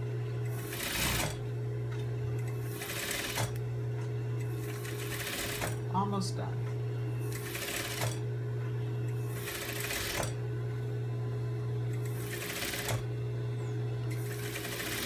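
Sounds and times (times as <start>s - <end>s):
motor hum: 0.0s - 15.0s
sewing machine stitching: 0.5s - 1.4s, 2.6s - 3.6s, 4.5s - 5.8s, 7.3s - 8.2s, 9.3s - 10.4s, 12.0s - 13.0s, 14.1s - 15.0s.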